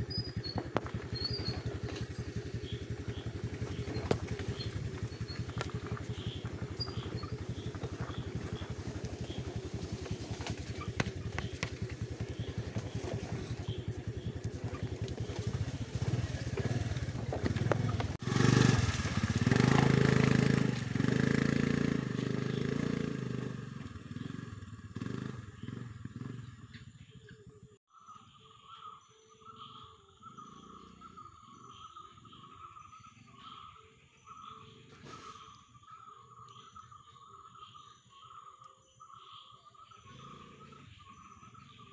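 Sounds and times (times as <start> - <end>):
scooter engine running: 0.0 - 27.8, 29.5 - 37.6, 39.8 - 41.9.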